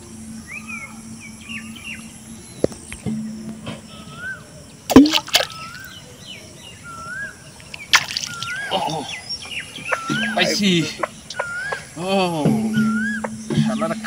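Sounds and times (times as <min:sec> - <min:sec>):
bird whistling: 0:00.4 - 0:04.6, 0:05.2 - 0:14.0
sharp knock: 0:04.9 - 0:05.8
splash of pond water: 0:04.9 - 0:06.0, 0:07.8 - 0:08.8.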